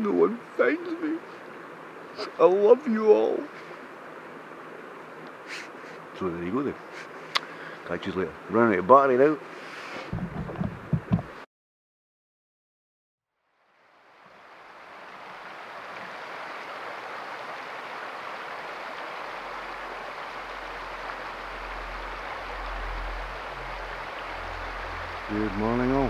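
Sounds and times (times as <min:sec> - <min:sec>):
stream flowing: 0:00.0 - 0:11.4, 0:13.5 - 0:26.0
low rumble: 0:20.5 - 0:26.0.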